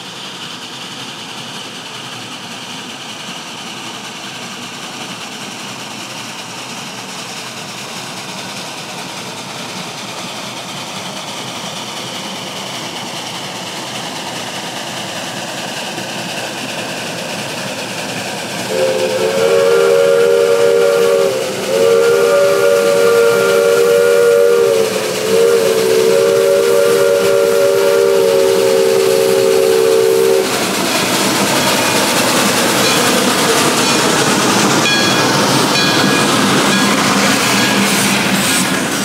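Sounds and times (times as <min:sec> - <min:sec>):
steam hissing: 0:00.0 - 0:39.0
steam locomotive chime whistle: 0:18.6 - 0:39.0.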